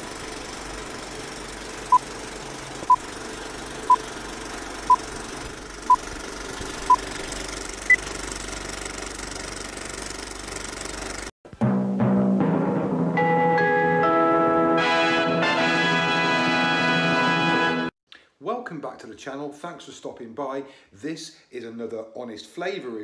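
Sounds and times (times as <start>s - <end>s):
film projector clatter: 0.0s - 11.3s.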